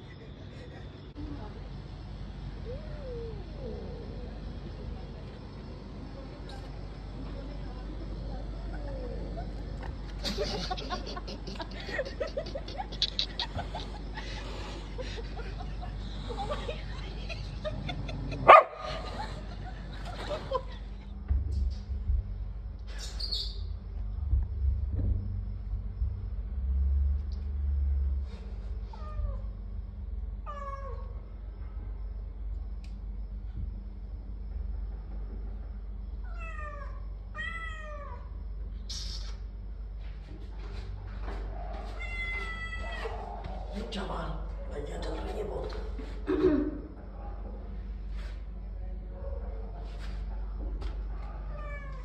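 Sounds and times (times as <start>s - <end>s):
dog barking: 18.4s - 19.1s, 42.8s - 43.8s, 47.1s - 47.6s
cat meowing: 30.5s - 31.1s, 36.2s - 38.3s, 41.9s - 43.4s, 51.5s - 52.0s.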